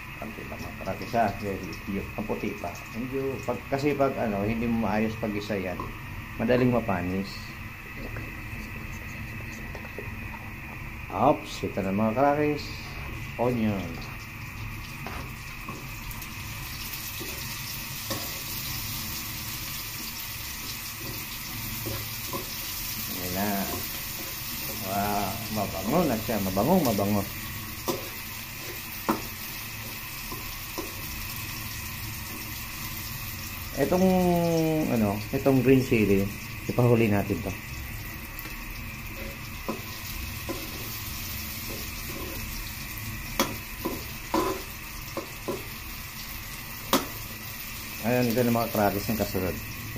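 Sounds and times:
onion sizzling in hot oil: 0.0s - 49.9s
spatula tapping and scraping wok: 17.0s - 18.8s, 20.0s - 22.8s, 27.8s - 31.2s, 38.4s - 41.0s, 41.6s - 42.5s, 43.3s - 45.8s, 46.9s - 47.2s.

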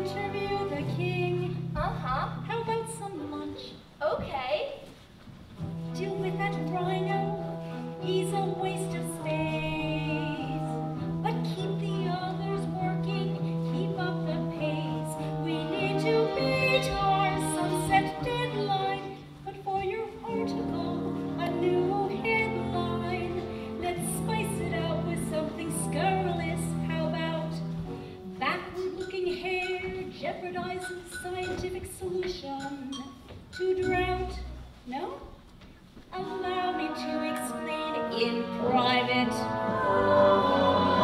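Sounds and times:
opera singing with accompaniment: 0.0s - 3.8s, 5.9s - 27.7s, 36.1s - 41.0s.

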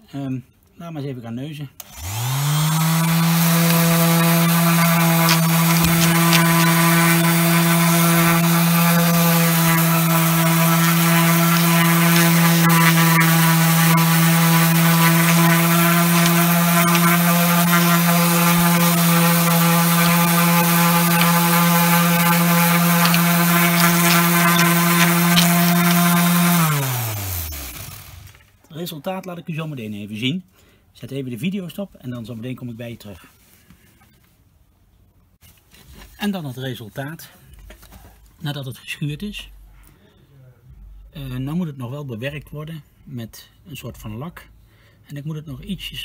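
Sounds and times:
electric palm sander running: 1.8s - 28.3s.

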